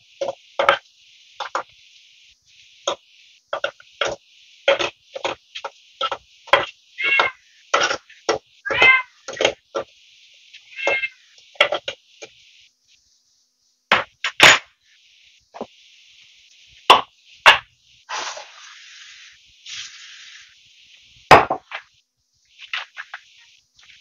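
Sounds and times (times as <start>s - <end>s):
faint steady hiss: 0.0s - 24.0s.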